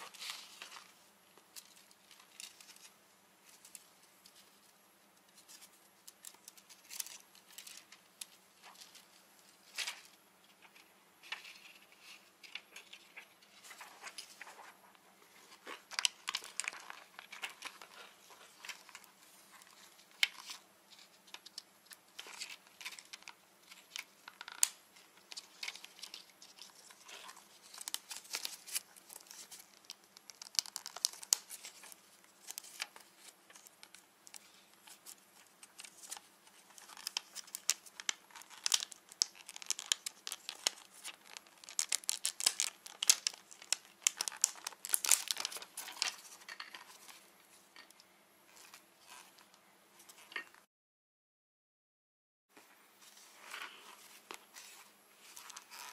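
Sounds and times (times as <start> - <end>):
plastic film crinkling: 15.4 - 47.9.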